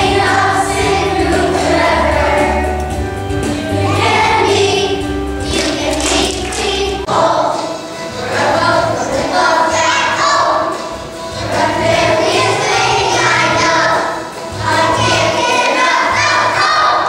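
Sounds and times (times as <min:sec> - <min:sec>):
children's choir singing: 0:00.0 - 0:17.0.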